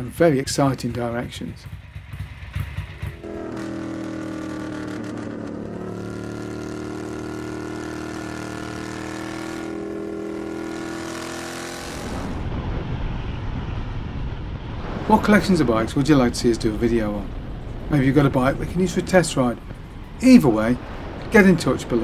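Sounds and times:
motorcycle engine running: 0.9 - 12.4
wind noise: 12.0 - 22.0.

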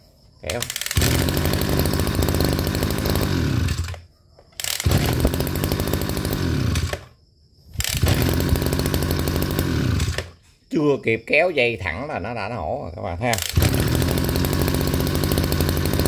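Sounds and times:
brush cutter engine starting and stopping: 0.5 - 4.0, 4.6 - 7.2, 7.8 - 10.4, 13.3 - 16.0
starter cord pulls: 0.5 - 4.0, 4.6 - 7.1, 7.8 - 10.4, 13.3 - 16.0.

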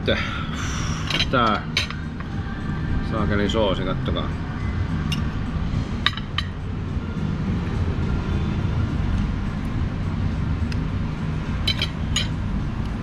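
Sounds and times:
steady low rumble: 0.0 - 13.0
cutlery clinking on a plate: 11.7 - 12.4.

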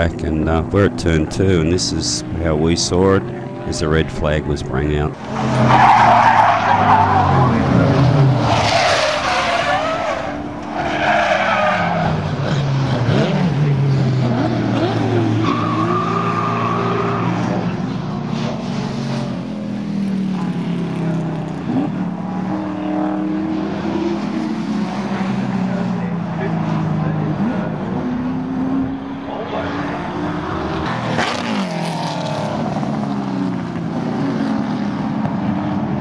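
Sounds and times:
racing car engines revving: 0.0 - 36.0
tyre squeals: 8.4 - 12.4, 15.1 - 17.6.

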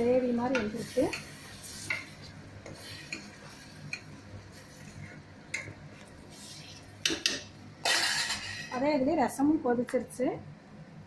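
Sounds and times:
spoon stirring thick gravy: 0.5 - 7.5.

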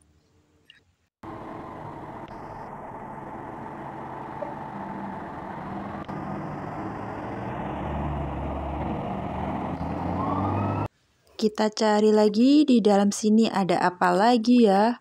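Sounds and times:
diesel engine rumbling: 1.2 - 10.9.

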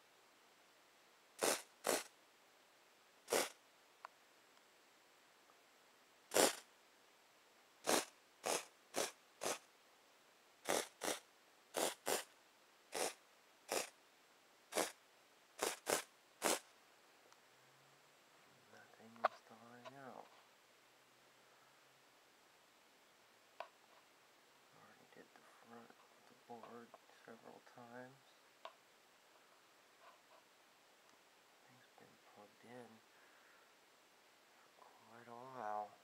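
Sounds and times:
canned air hissing: 1.4 - 2.1, 3.3 - 3.6, 12.9 - 13.9, 15.6 - 16.6.

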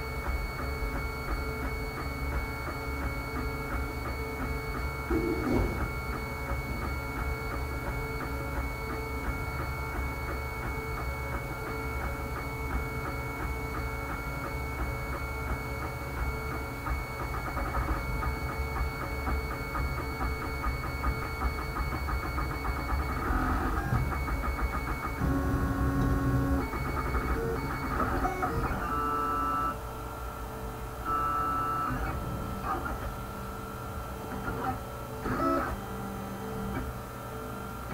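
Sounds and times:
low hum: 5.1 - 6.3
stepper motors whining: 5.1 - 7.3.

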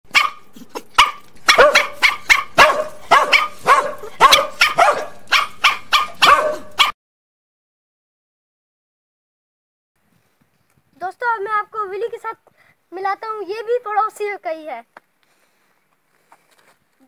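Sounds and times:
dog barking: 0.1 - 7.0.

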